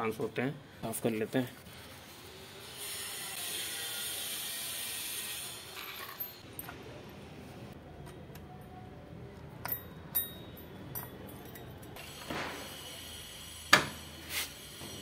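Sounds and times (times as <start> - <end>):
metal tools clinking: 9.6 - 12.0.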